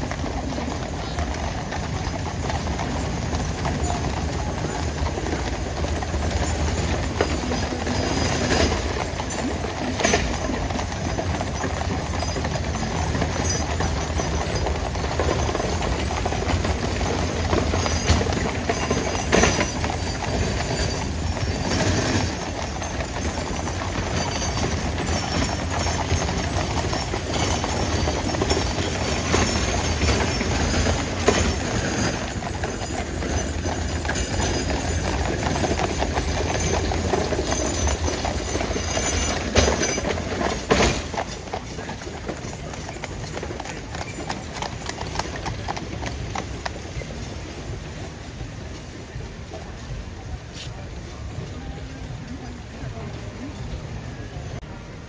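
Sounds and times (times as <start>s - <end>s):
horse hooves clip-clopping: 0.0s - 53.9s.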